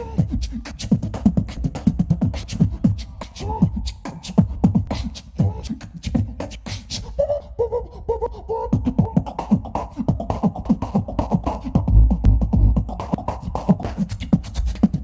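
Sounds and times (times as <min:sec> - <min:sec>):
beatboxing: 0:00.0 - 0:15.0
person humming: 0:02.5 - 0:06.3.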